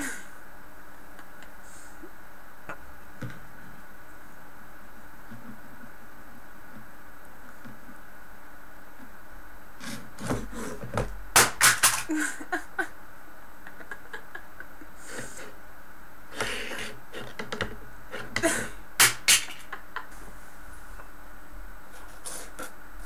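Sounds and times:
plastic objects scraping on wood: 9.8 - 11.1, 16.4 - 18.4.

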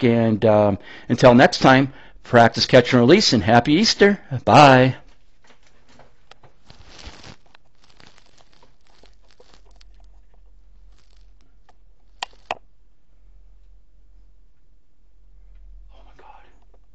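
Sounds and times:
low steady hum: 4.2 - 16.9
faint rustling handling noise: 4.6 - 12.6
sharp clicks: 11.6 - 12.6.

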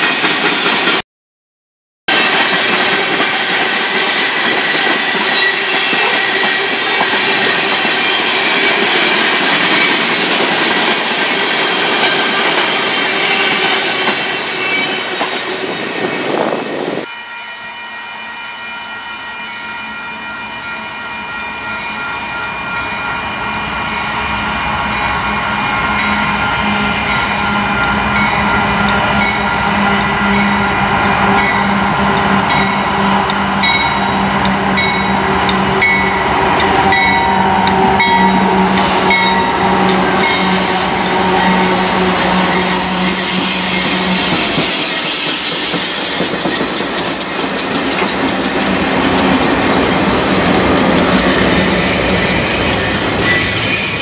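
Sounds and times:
diesel locomotives approaching: 0.0 - 1.0, 2.1 - 54.0
freight train rolling past: 0.0 - 1.0, 2.1 - 54.0
steady high tones: 18.9 - 54.0.

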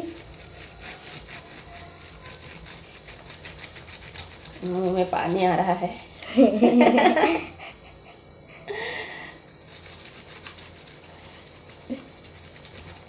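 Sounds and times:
lime rubbing on corn cob: 0.0 - 5.8, 9.6 - 13.0.

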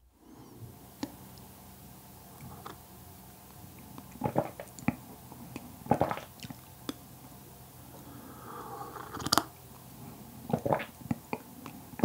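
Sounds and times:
wet clicking gulps: 3.8 - 7.0, 10.5 - 11.8
sipping and swallowing coffee: 8.7 - 9.5.

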